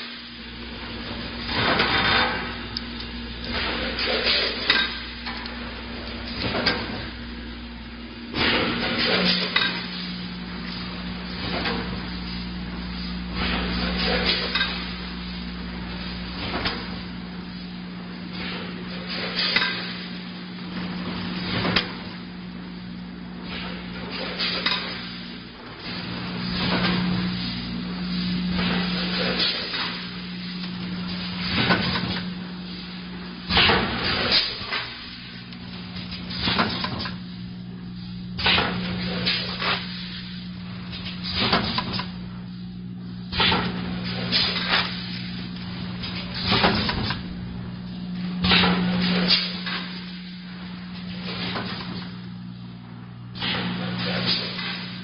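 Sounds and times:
machine motor hum: 0.0s - 55.0s.

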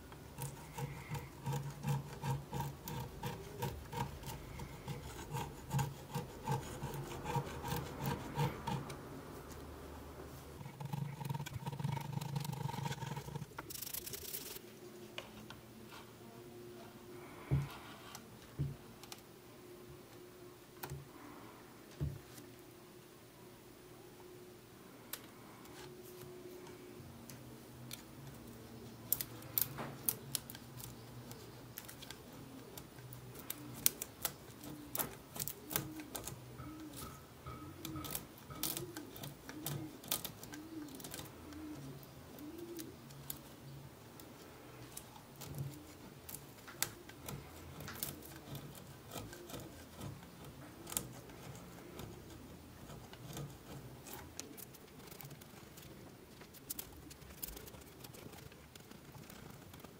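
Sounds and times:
knife blade scraping wood: 0.3s - 9.0s, 46.9s - 54.5s.

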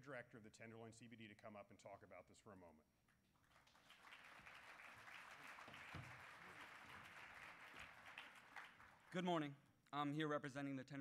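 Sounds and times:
audience applauding: 3.4s - 9.3s.

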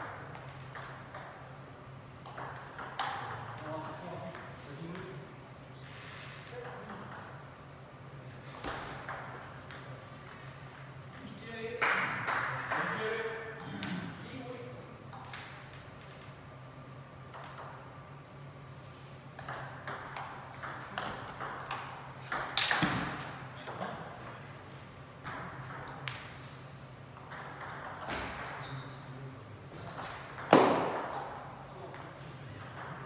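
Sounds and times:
steady low hum: 0.0s - 33.0s
voices in a hall: 11.5s - 15.1s.

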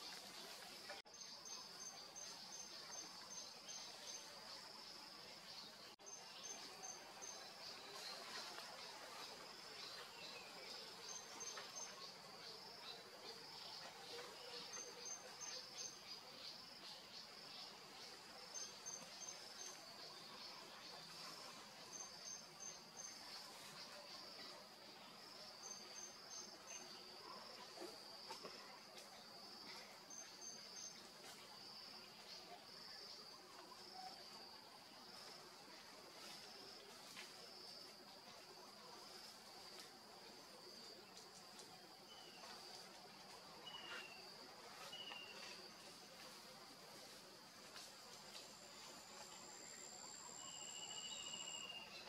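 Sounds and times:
insect chirps: 0.0s - 52.0s
insect chorus shrilling: 50.2s - 52.0s.

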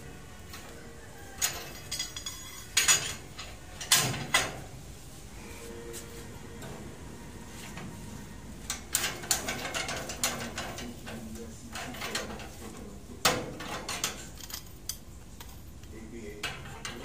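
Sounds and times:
metal clicks and clanks: 0.5s - 4.6s, 8.7s - 17.0s.

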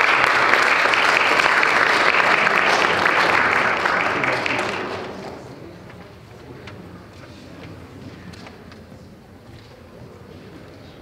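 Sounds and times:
audience applause: 0.0s - 5.5s.

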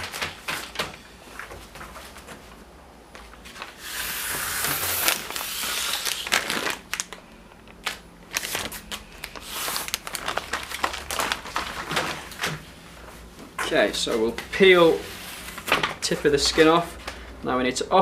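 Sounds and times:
plastic sheet crinkling: 3.3s - 12.7s.

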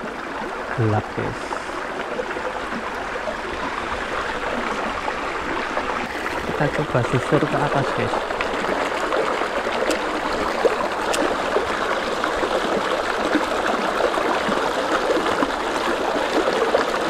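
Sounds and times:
stream babbling over stones: 0.0s - 17.0s.

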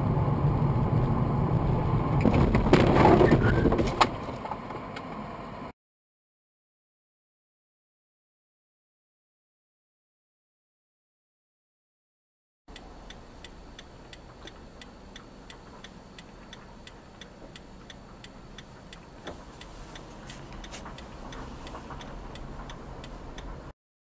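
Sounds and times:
low engine hum: 0.0s - 5.7s, 12.7s - 23.8s
indicator relay ticking: 12.7s - 23.7s.

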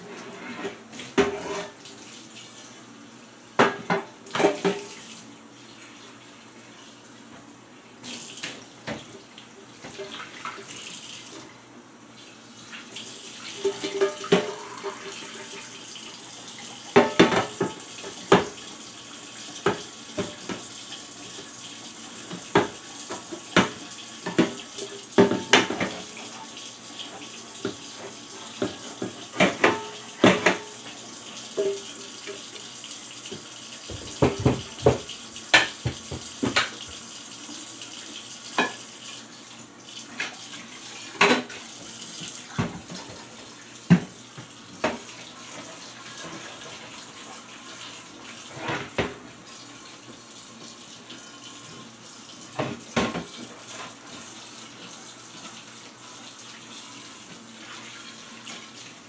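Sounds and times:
pots and dishes clanking: 0.0s - 1.8s, 3.6s - 5.0s, 13.5s - 15.7s, 16.9s - 18.6s, 22.2s - 26.1s, 27.6s - 30.9s, 31.5s - 32.5s, 33.3s - 36.9s, 38.6s - 38.8s, 48.5s - 49.2s
tap running into sink: 16.9s - 18.6s, 19.6s - 20.7s, 22.2s - 26.1s, 33.2s - 37.0s, 41.1s - 46.5s, 52.5s - 54.2s.

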